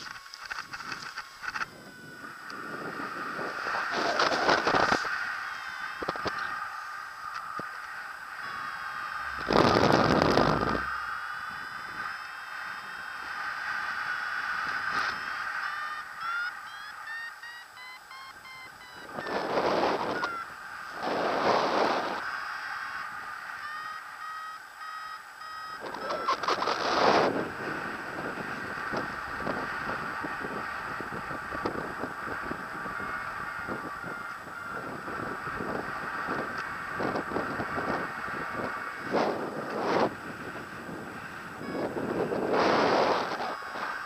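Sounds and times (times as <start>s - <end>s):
wind buffeting microphone: 0.0s - 12.2s, 19.0s - 22.3s, 25.8s - 44.0s
variometer beeping: 0.0s - 21.2s, 23.4s - 32.6s, 41.2s - 44.0s.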